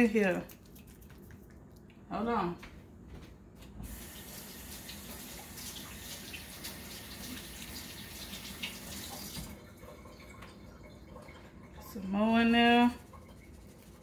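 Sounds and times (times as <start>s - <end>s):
tap water running: 3.8s - 14.0s.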